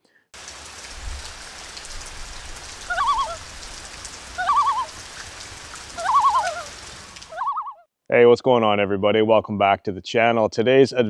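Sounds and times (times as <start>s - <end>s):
bird warbling call: 2.8s - 3.5s, 4.4s - 5.0s, 5.9s - 7.8s.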